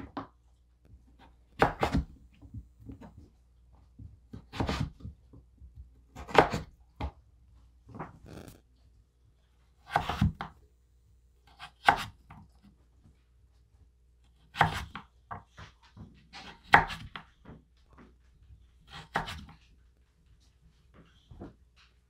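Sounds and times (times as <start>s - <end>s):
knife chopping on cutting board: 1.2s - 2.2s, 4.3s - 5.0s, 6.1s - 7.2s, 9.8s - 10.5s, 11.5s - 12.4s, 14.5s - 15.4s, 16.3s - 17.2s, 18.9s - 19.5s.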